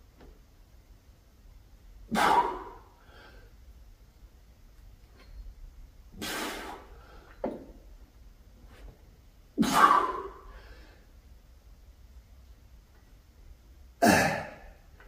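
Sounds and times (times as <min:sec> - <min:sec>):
man exhaling forcefully: 0:02.1 - 0:03.4, 0:06.2 - 0:07.2.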